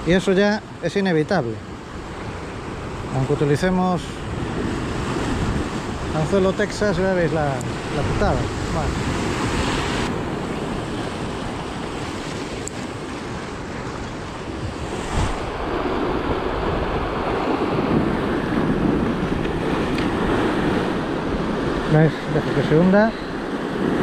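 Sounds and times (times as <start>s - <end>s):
waves breaking over rocks: 0.1s - 24.0s
wind noise on microphone: 4.2s - 6.8s, 7.6s - 22.4s.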